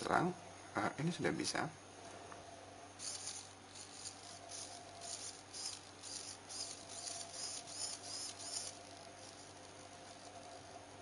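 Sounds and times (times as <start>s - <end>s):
servo motor whirring: 3.0s - 10.9s.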